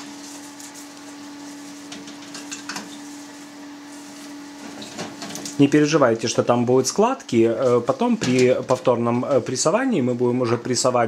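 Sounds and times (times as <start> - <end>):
cloth rustling: 0.0 - 5.0
steady hum: 0.0 - 11.0.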